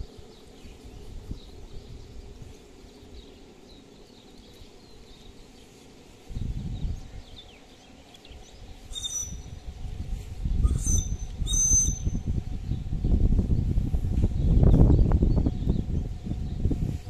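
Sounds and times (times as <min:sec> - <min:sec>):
low rumbling bursts: 0:06.2 - 0:17.0
faint bird chirps: 0:06.8 - 0:09.6, 0:10.7 - 0:12.2
high whistle-like calls: 0:08.9 - 0:09.6, 0:10.6 - 0:12.3.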